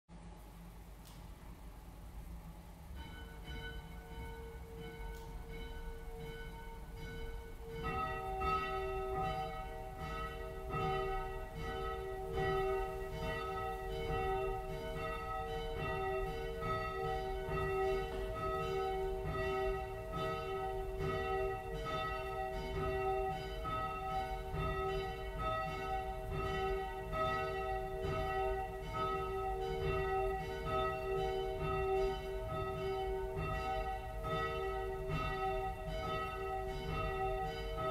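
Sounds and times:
church bells ringing: 2.8s - 37.9s.

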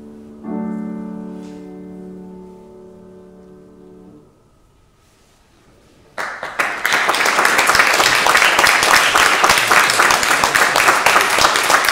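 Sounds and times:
audience applause: 6.2s - 11.9s.

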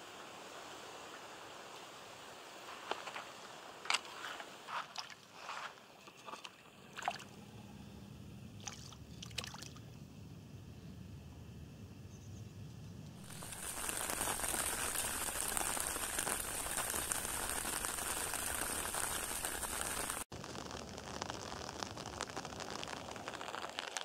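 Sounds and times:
rain falling on river: 13.2s - 24.0s.

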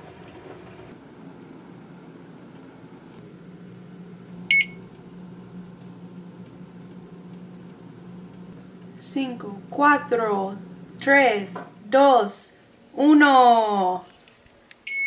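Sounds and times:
steady low hum: 0.0s - 13.7s.

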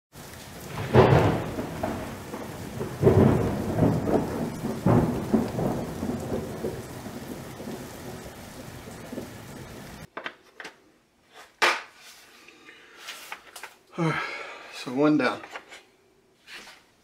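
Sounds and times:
rain hissing: 0.1s - 10.1s
thunder rolling: 0.2s - 10.1s.

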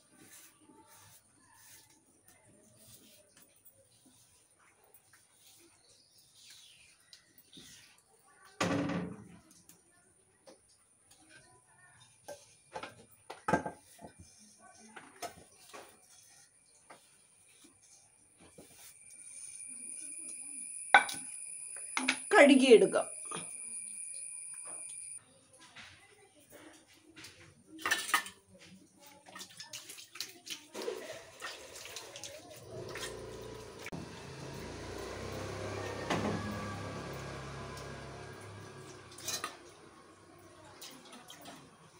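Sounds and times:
water splashing: 29.4s - 34.0s.

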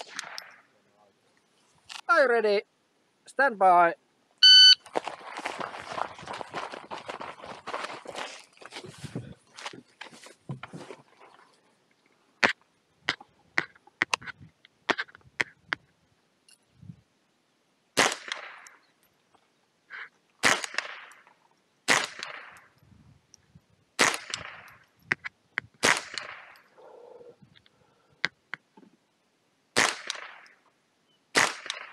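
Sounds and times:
rifle shots: 0.0s - 0.6s, 18.0s - 18.7s, 20.4s - 21.2s, 21.9s - 22.6s, 24.0s - 24.7s, 25.8s - 26.6s, 29.8s - 30.5s, 31.4s - 31.9s.

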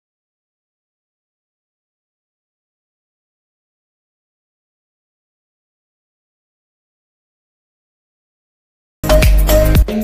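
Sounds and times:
background music with heavy bass beat: 9.0s - 10.0s.

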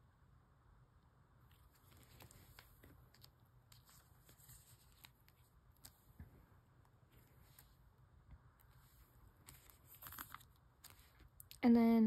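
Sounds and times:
cards sliding into plastic sleeves: 1.6s - 6.3s, 8.6s - 11.3s.

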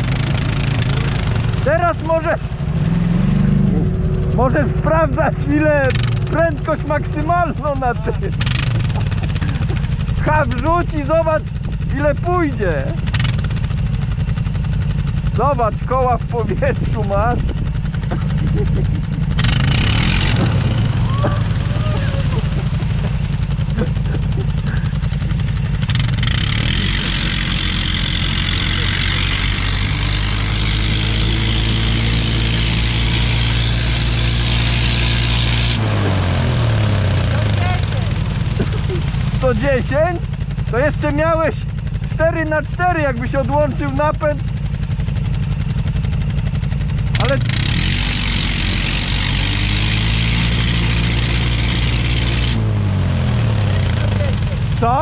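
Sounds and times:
quad engine revving high: 0.0s - 55.0s
wheels throwing mud: 17.3s - 40.2s.

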